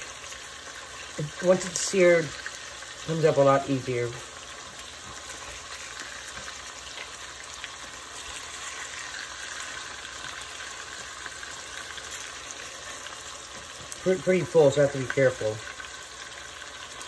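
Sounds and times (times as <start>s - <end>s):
meatballs sizzling in hot oil: 0.0s - 17.0s
wooden spoon turning meatballs: 0.0s - 17.0s.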